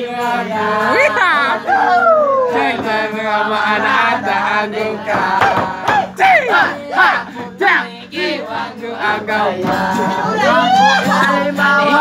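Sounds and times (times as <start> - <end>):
person singing or wailing: 1.7 - 2.7, 10.3 - 11.4.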